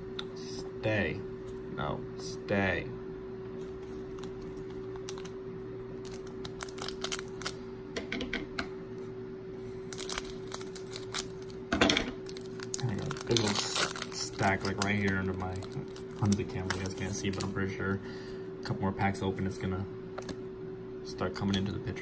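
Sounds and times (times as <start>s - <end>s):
faint hum: 0.0s - 22.0s
foil wrapper crinkling: 3.9s - 5.3s, 6.0s - 7.6s, 9.9s - 11.6s, 12.2s - 17.7s.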